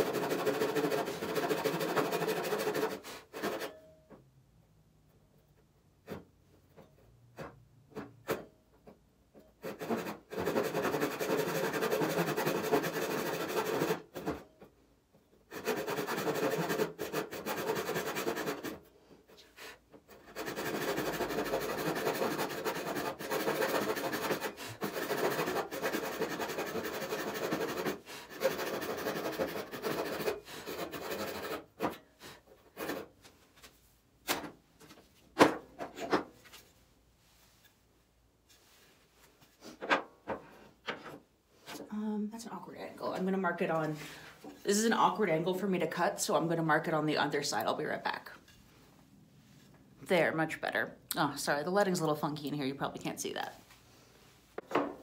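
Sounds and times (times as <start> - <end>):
handsaw cutting board: 0.0 - 3.8, 9.6 - 14.4, 15.5 - 18.9, 20.1 - 33.1.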